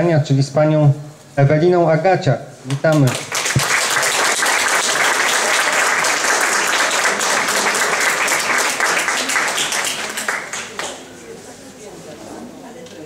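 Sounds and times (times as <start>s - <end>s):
audience applauding: 2.8s - 11.1s.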